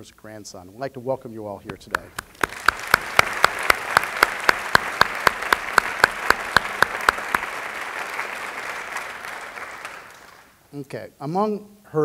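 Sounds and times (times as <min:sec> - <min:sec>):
audience applauding: 0:01.7 - 0:10.6
close sharp hand claps: 0:01.7 - 0:10.6.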